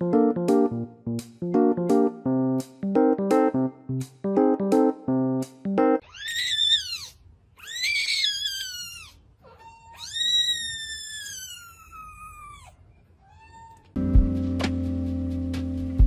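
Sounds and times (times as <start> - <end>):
kitten mewing: 6.0 - 14.0.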